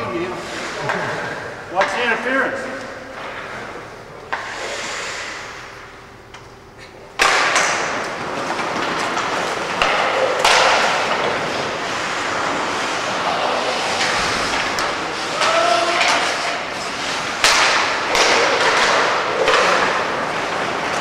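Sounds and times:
hockey sticks and puck knocking: 7.2 - 21.0
skate blades scraping ice: 7.8 - 21.0.

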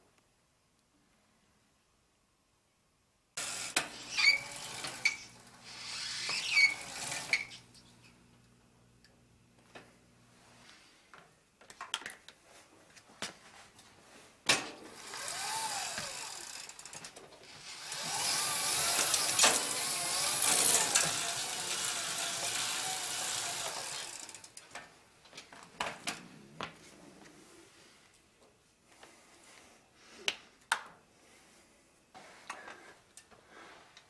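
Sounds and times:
electric motor whine: 15.0 - 16.4, 17.6 - 24.3.

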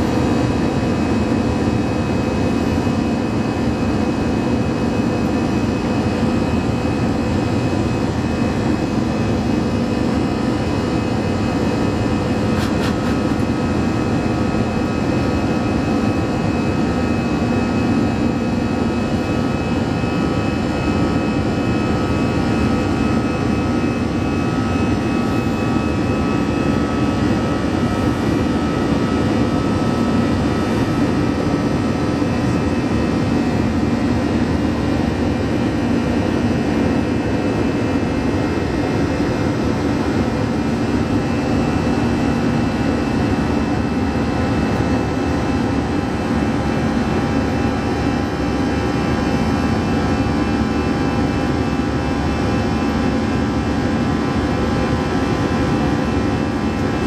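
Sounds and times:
jet engines roaring in cabin: 0.0 - 57.0
multi-tone hum: 0.0 - 57.0.

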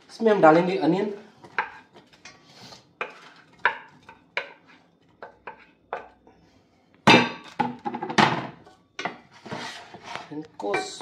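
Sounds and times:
metal utensil clinking on pan: 10.6 - 11.0.

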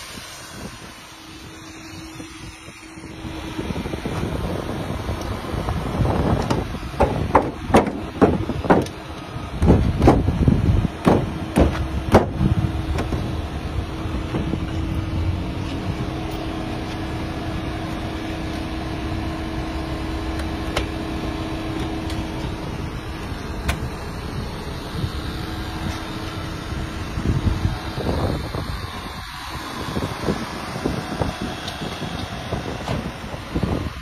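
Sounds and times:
mechanical hum: 0.0 - 34.0
knocks: 6.5 - 8.9.

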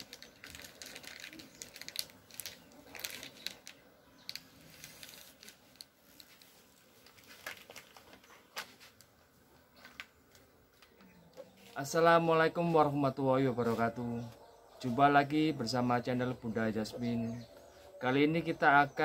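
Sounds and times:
faint clicks and ticks: 0.0 - 8.3.

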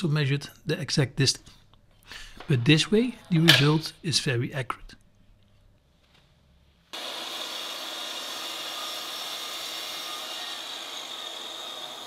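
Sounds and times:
miter saw whining: 7.0 - 12.0.

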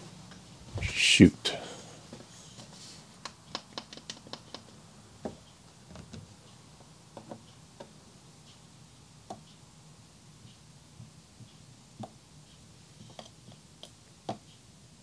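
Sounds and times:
faint clicks and taps: 2.1 - 8.6, 11.4 - 14.6.

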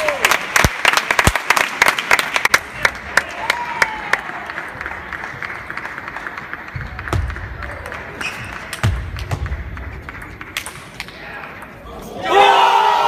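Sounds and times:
echoing hall noise: 0.0 - 13.0
table tennis balls clicking: 6.5 - 11.8.

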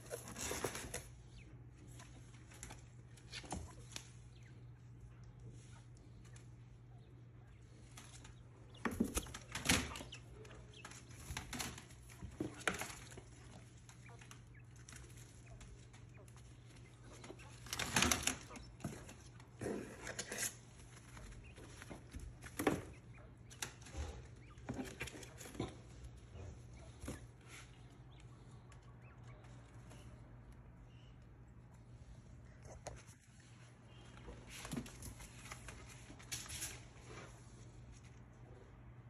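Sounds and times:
quails flapping in cardboard box: 0.0 - 4.5, 7.5 - 29.6.

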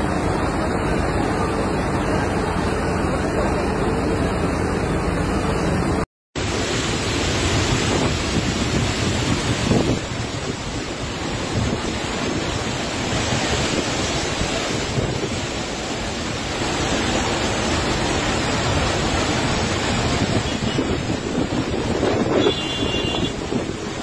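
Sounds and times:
floodwater rushing: 6.4 - 24.0
wind buffeting microphone: 7.5 - 16.1, 18.5 - 24.0.

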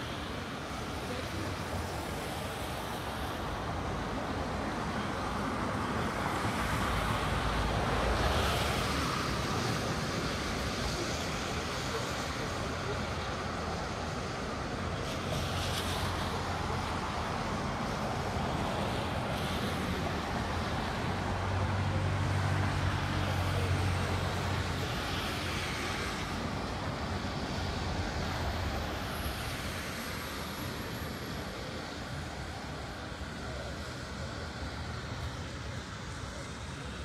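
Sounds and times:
cars passing: 0.0 - 37.0
rain hiss on wet road: 0.0 - 37.0.

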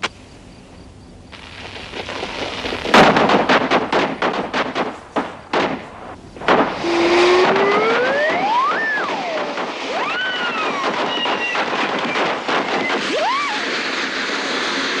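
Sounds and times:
firecracker pops: 1.3 - 15.0
firework whistle: 6.6 - 15.0.

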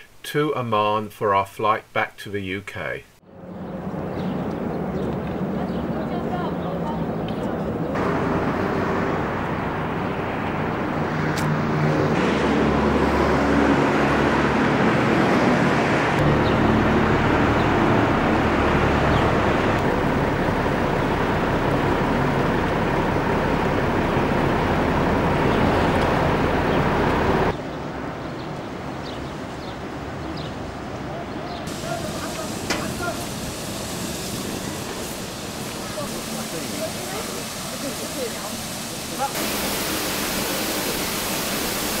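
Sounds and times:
outdoor background noise: 0.0 - 42.0
passing cars: 3.2 - 33.2.

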